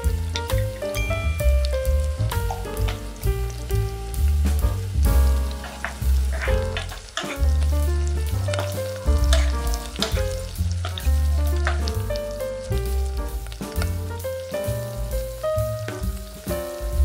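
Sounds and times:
background music with bass: 0:00.0 - 0:17.0
sausage sizzling in frying pan: 0:00.0 - 0:17.0
spatula scraping pan: 0:05.5 - 0:07.6, 0:08.5 - 0:11.9.

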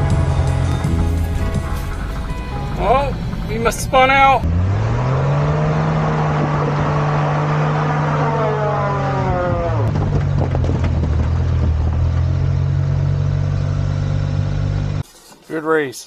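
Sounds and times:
mini truck engine running: 0:00.0 - 0:07.0, 0:07.6 - 0:15.0
high tone sliding down in pitch: 0:00.0 - 0:09.9.

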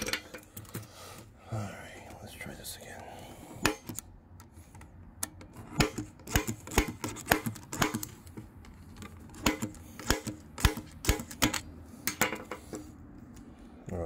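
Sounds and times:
center punch metallic clicks: 0:03.6 - 0:12.2.

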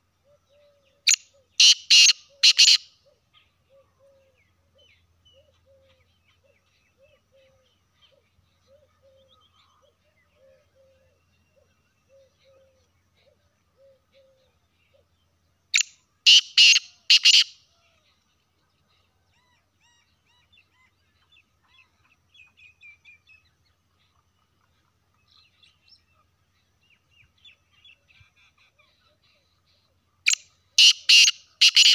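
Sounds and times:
small birds chirping: 0:00.0 - 0:31.9
francolin calling: 0:00.2 - 0:17.6, 0:30.3 - 0:31.9.

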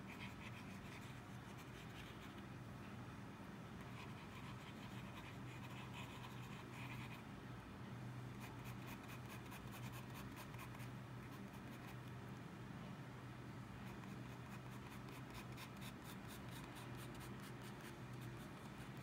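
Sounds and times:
pen nib scratching paper: 0:00.1 - 0:02.4, 0:08.4 - 0:12.0, 0:13.8 - 0:19.0.

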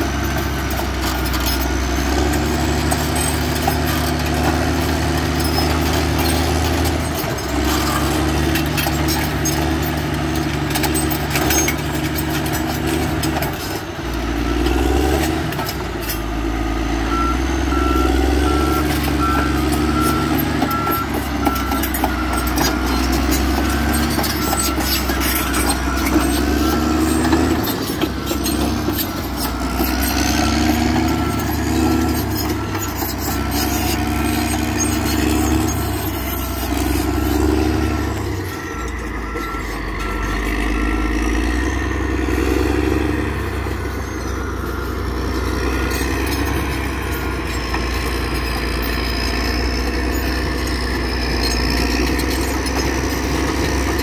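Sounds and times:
bulldozer diesel engine under load: 0:00.0 - 0:54.0
track clanks and rattles: 0:00.0 - 0:54.0
reversing alarm beeping: 0:00.1 - 0:54.0.

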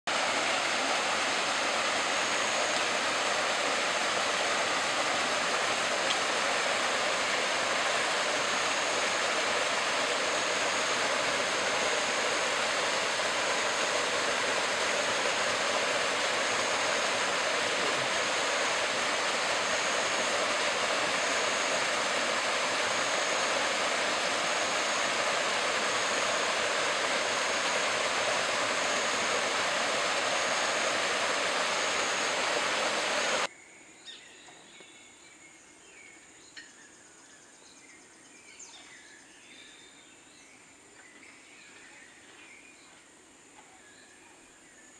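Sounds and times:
flowing water rushing: 0:00.1 - 0:33.5
thin high whine: 0:00.1 - 0:33.5.

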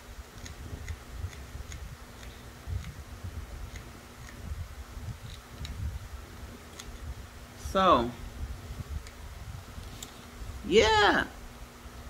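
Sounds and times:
faint regular ticking: 0:00.4 - 0:04.6.

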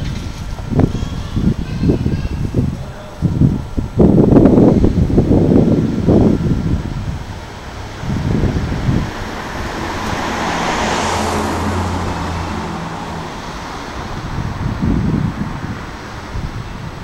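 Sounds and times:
wind buffeting microphone: 0:00.0 - 0:17.0
vehicle passing by: 0:04.0 - 0:17.0.

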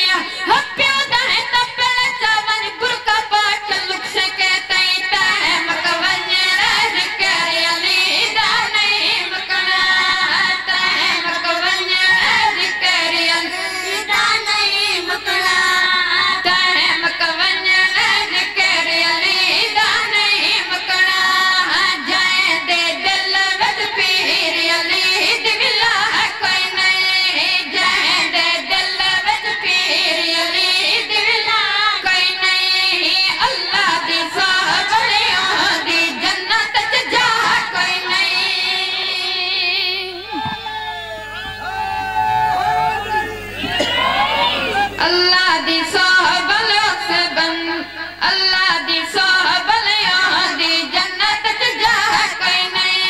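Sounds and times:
boys singing: 0:03.7 - 0:31.8.

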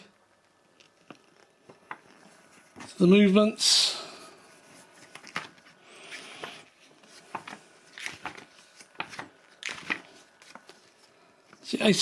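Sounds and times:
paper rustling: 0:04.5 - 0:11.7
crisp paper crackles: 0:06.4 - 0:11.7.

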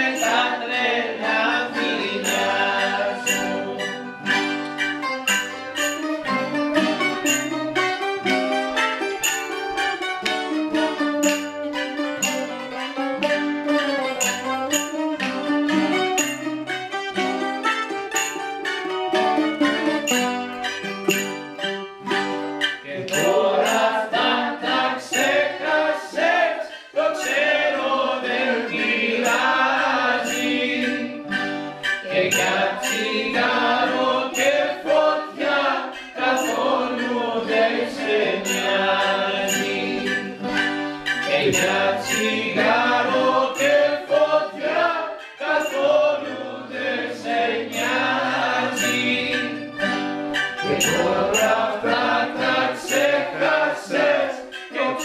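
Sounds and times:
group singing in unison: 0:00.0 - 0:04.9, 0:22.7 - 0:55.0
bouzoukis plucked and strummed: 0:00.0 - 0:55.0.

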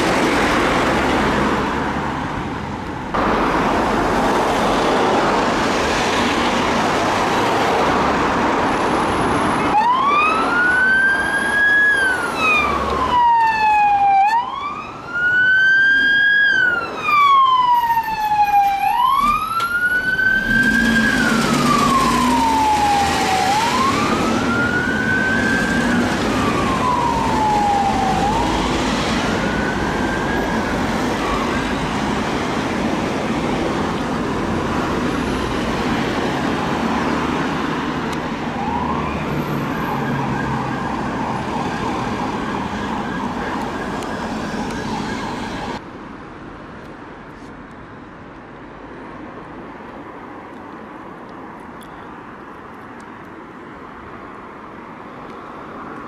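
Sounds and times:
road traffic noise: 0:00.0 - 0:56.0
wail siren rising and falling: 0:09.6 - 0:32.2, 0:38.3 - 0:45.8.

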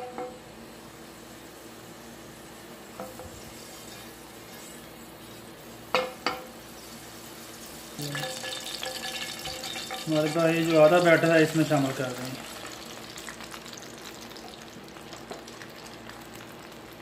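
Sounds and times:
oil hissing in pan: 0:00.7 - 0:17.0
pan knocking on burner grate: 0:05.9 - 0:06.5, 0:08.1 - 0:10.5.

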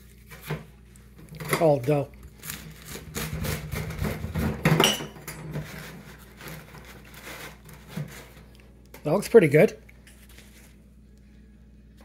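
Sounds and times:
pizza cutter scraping over mesh: 0:02.4 - 0:04.7, 0:05.4 - 0:08.5.

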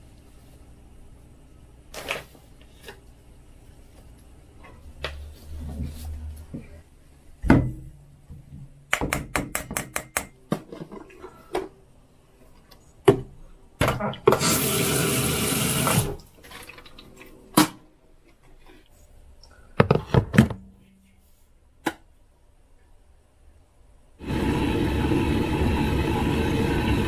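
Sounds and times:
utensils knocking and clicking: 0:08.9 - 0:10.7.

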